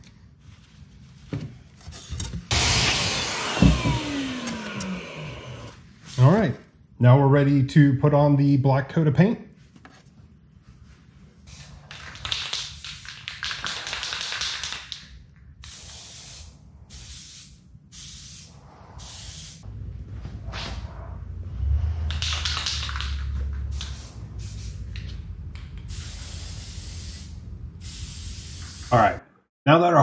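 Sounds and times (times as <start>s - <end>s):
spray-paint can hissing: 11.5s - 15.0s, 15.6s - 19.6s, 22.1s - 25.2s, 25.8s - 28.9s
low rumble: 18.5s - 22.4s.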